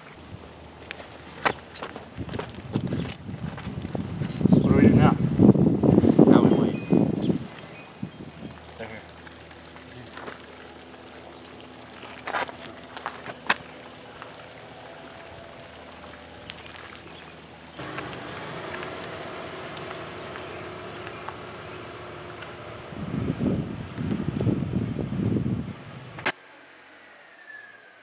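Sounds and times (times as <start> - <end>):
car engine running: 9.1 - 26.3.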